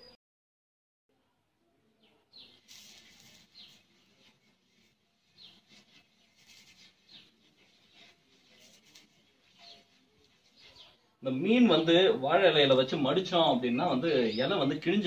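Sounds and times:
bird chirping: 0:01.8 - 0:12.2, 0:12.9 - 0:15.0
soft hiss: 0:02.6 - 0:04.9.

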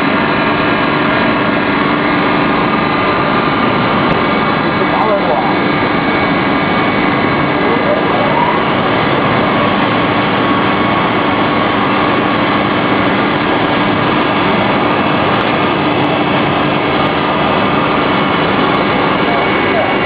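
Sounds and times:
saw machine running: 0:00.0 - 0:20.0.

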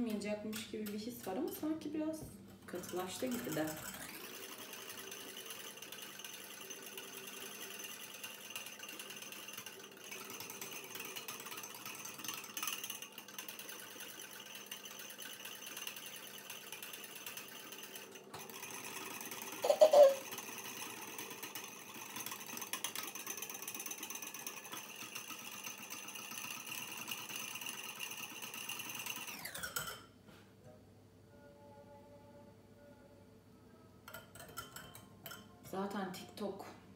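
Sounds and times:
whisk clattering in a bowl: 0:02.7 - 0:30.0, 0:34.1 - 0:36.2.

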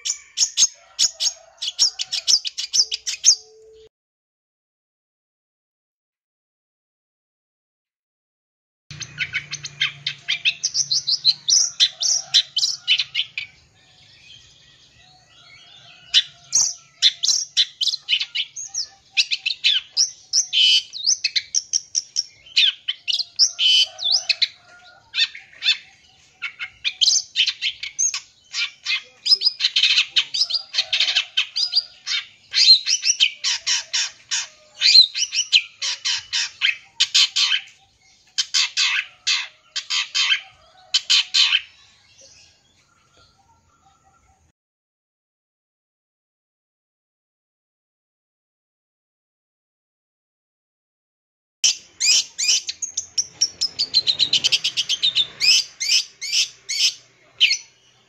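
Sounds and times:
shrike chattering song: 0:08.9 - 0:13.6.

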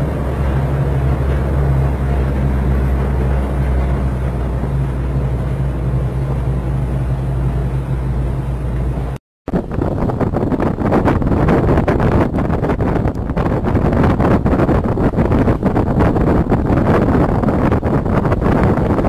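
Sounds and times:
water splashing: 0:00.0 - 0:11.1
boat engine humming: 0:00.0 - 0:19.0
water rushing from hull: 0:00.0 - 0:19.0
wind noise on microphone: 0:00.0 - 0:19.0.

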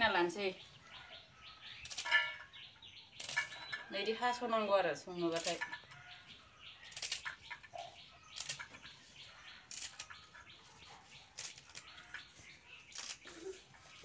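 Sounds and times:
leafy stems snapping: 0:06.8 - 0:07.6, 0:12.9 - 0:13.4.

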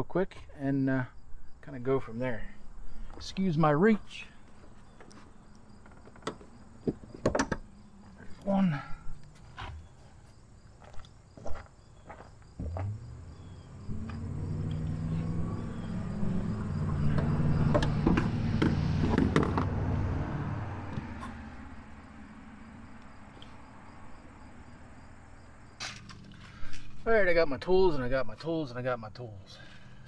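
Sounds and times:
insects chirping: 0:00.0 - 0:30.0
vehicle passing by: 0:12.6 - 0:26.7.

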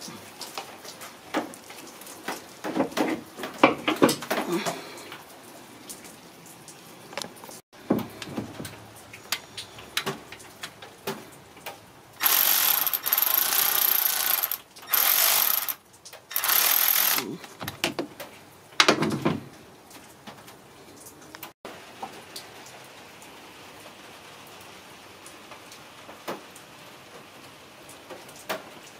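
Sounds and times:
ratchet wrench ratcheting: 0:12.2 - 0:17.3.

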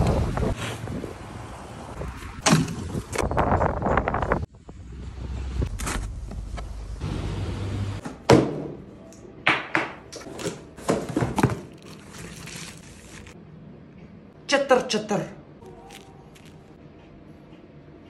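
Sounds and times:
cardboard flaps tearing: 0:11.4 - 0:13.4.

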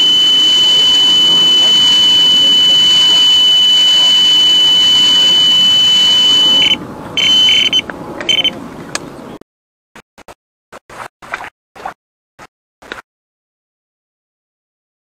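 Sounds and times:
bite alarm high tone: 0:00.0 - 0:08.6
short alarm beeps: 0:00.0 - 0:08.6.

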